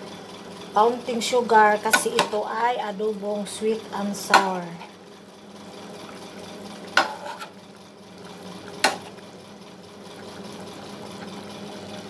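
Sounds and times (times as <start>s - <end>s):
spatula knocking against pan: 1.9s - 2.4s, 6.9s - 7.4s, 8.8s - 9.1s
sauce simmering: 5.0s - 12.0s
spatula stirring in pan: 5.8s - 9.3s.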